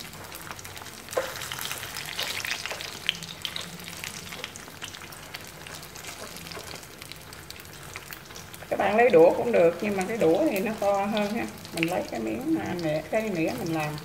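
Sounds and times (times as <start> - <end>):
tofu skin sizzling in oil: 0.0 - 14.0.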